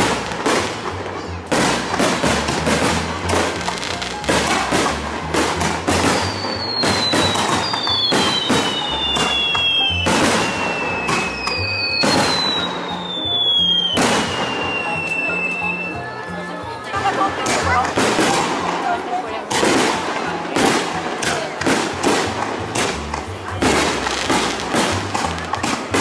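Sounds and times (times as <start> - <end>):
fireworks bangs and crackles: 0.0 - 26.0
fireworks whistles sliding down: 6.0 - 16.0.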